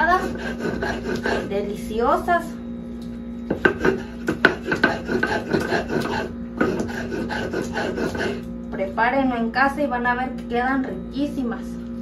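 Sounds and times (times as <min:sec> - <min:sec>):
grinding stone rasping: 0:00.0 - 0:01.9, 0:03.5 - 0:08.5.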